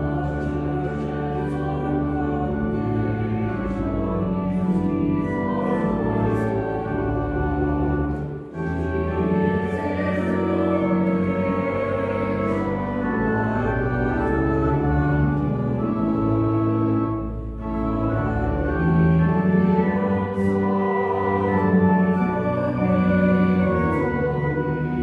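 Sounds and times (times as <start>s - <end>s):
organ playing held chords: 0.0s - 25.0s.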